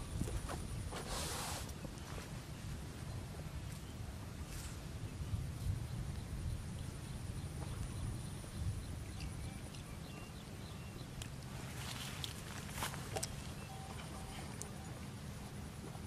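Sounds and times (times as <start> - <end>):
faint high chirps: 13.2 - 15.1.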